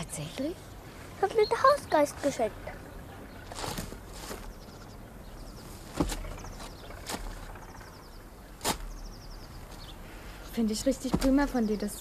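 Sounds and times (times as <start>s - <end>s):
small bird twittering: 0.7s - 12.0s.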